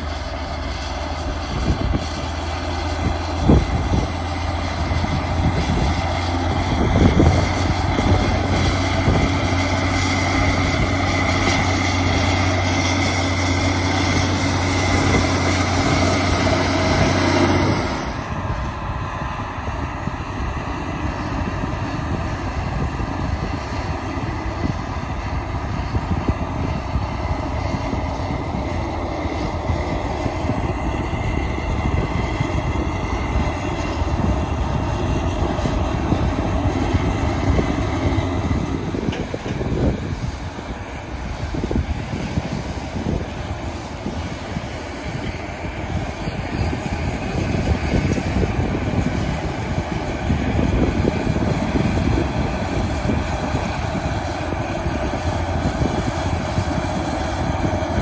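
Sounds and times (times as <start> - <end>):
diesel farm machinery humming: 0.0 - 58.0.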